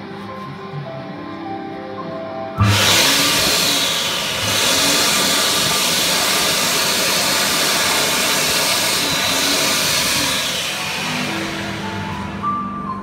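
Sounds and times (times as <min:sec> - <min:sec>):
hand dryer blowing air: 0:02.6 - 0:13.0.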